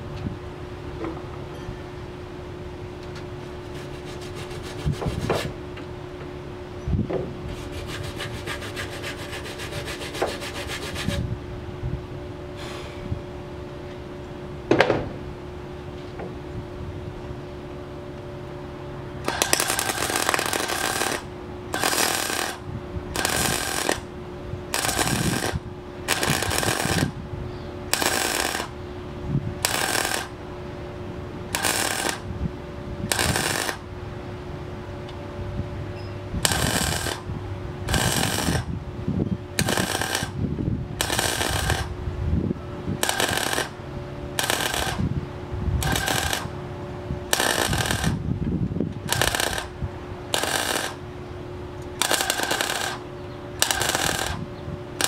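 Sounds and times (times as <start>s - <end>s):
steady hum: 0.0s - 55.0s
welder crackling bursts: 19.2s - 24.1s, 24.7s - 27.2s, 27.9s - 28.8s, 29.6s - 30.4s, 31.5s - 32.3s, 33.1s - 33.8s, 36.4s - 38.7s, 39.6s - 40.4s, 41.0s - 41.9s, 43.0s - 43.8s, 44.4s - 45.1s, 45.8s - 46.5s, 47.3s - 48.2s, 49.0s - 51.0s, 51.9s - 55.0s.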